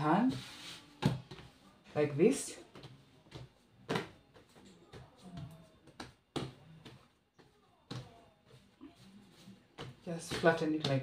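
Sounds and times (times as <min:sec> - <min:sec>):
hands slapping bread dough: 0:02.7 - 0:11.0.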